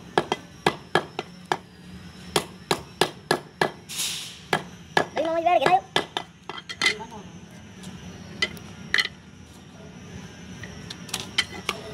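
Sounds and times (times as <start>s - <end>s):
scraping hiss: 3.9s - 4.5s.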